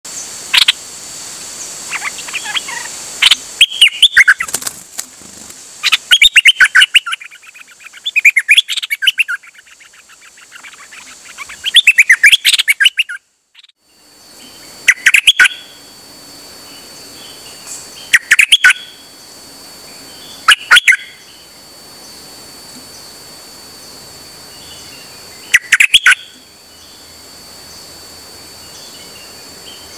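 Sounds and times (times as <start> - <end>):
songbird chattering song: 1.6 - 4.6, 5.8 - 15.8, 16.7 - 19.0, 19.9 - 22.2, 24.5 - 27.8.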